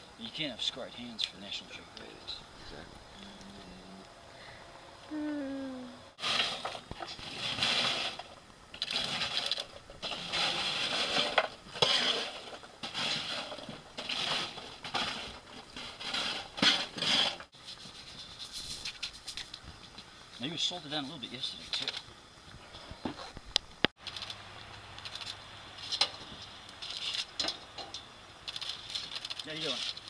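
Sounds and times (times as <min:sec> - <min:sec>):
coals scraped in metal firebox: 0:06.2 - 0:22.0, 0:25.0 - 0:30.0.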